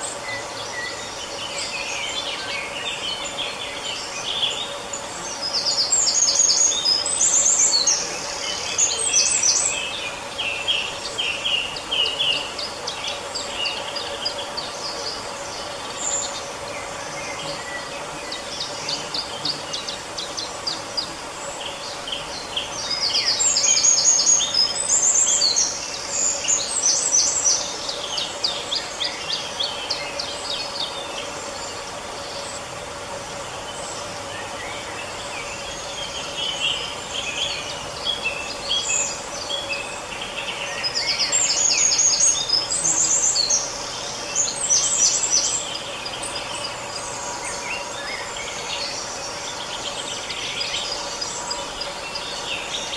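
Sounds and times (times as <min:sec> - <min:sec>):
songbird twittering song: 0:00.0 - 0:52.9.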